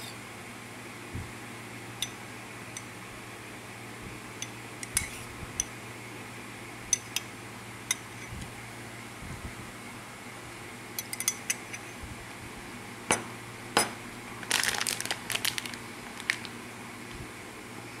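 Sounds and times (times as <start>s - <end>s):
plastic packet crinkling: 14.4s - 16.6s.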